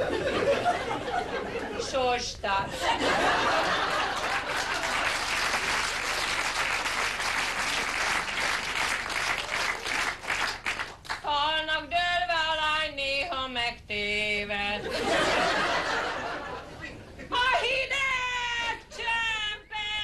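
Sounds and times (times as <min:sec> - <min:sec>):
audience applauding: 0:03.6 - 0:11.2
woman singing unaccompanied: 0:11.2 - 0:14.8, 0:17.4 - 0:20.0.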